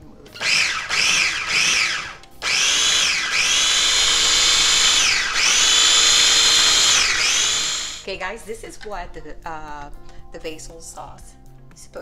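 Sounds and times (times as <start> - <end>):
food chopper motor whining: 0.4 - 8.1.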